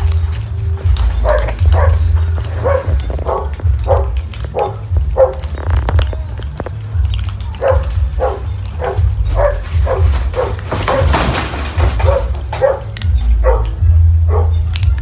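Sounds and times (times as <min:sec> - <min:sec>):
steady low rumble: 0:00.0 - 0:10.7
animal calling: 0:01.0 - 0:14.8.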